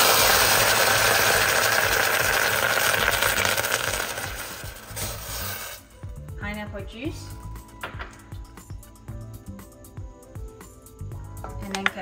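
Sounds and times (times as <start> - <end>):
vinegar sizzling in hot pan: 0.0 - 6.2.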